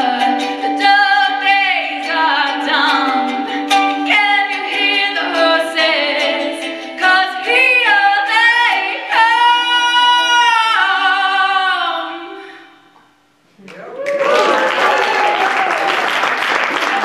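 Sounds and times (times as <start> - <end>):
ukulele strumming: 0.0 - 12.3
woman singing: 0.0 - 12.8.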